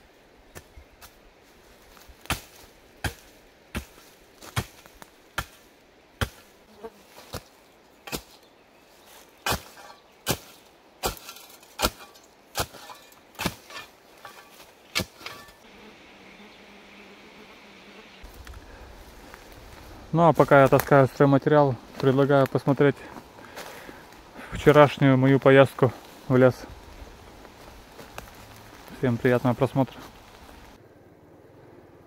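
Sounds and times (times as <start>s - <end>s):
axe chopping wood: 2.2s - 4.8s, 5.4s - 5.6s, 6.2s - 6.4s, 9.5s - 13.8s.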